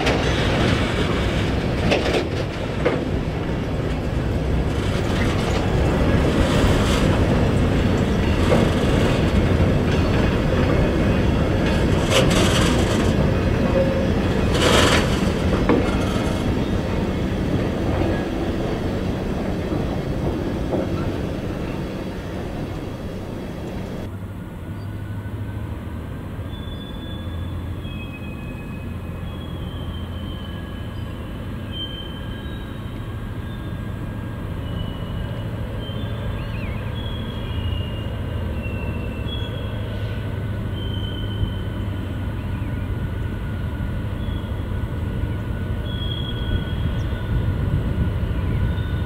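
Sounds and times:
train wheels clattering over rails: 0.0s - 24.1s.

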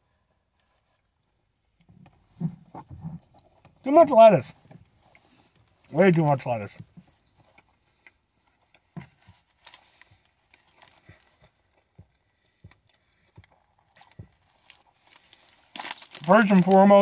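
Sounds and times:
chewing with small crunches: 7.0s - 16.5s.

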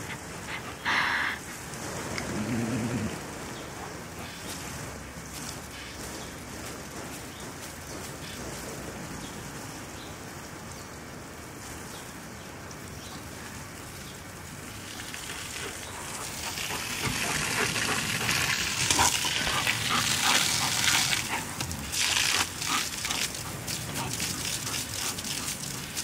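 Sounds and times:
water spraying onto grass: 0.0s - 26.0s.

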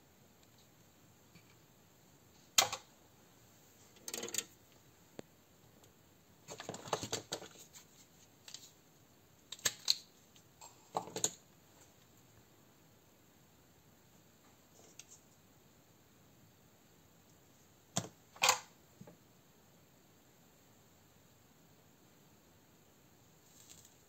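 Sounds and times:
clicks and taps of small parts: 9.5s - 11.4s.

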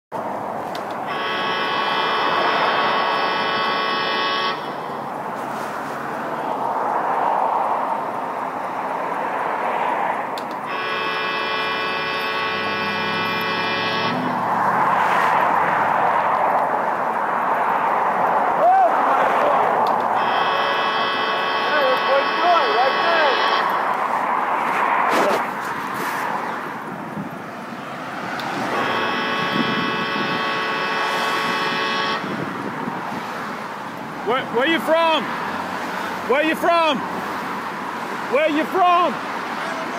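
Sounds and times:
passing vehicle engine and tyres: 0.2s - 39.9s
buzzing tone with horn-like ring: 1.0s - 5.0s, 10.6s - 14.4s, 20.2s - 24.0s, 28.7s - 32.4s.

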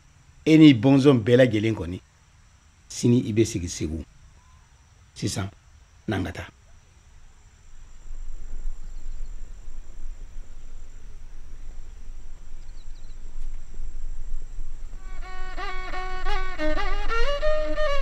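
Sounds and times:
insects trilling: 0.0s - 18.0s
low rough outdoor rumble: 0.0s - 18.0s
bowed fiddle melody: 14.8s - 18.0s.

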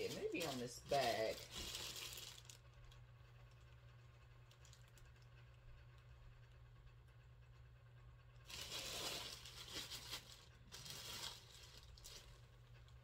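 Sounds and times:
packaging crinkling and rustling: 0.0s - 3.7s, 4.4s - 5.3s, 8.4s - 12.5s
faint low hum: 0.0s - 13.0s.

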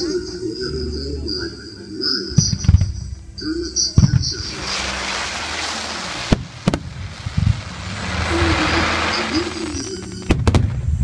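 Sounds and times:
fountain fireworks hissing: 2.2s - 11.0s
firework bangs: 4.0s - 11.0s.

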